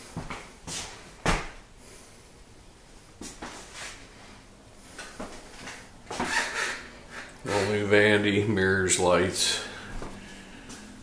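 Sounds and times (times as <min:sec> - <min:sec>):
footsteps on hard flooring: 0:09.9 - 0:10.8.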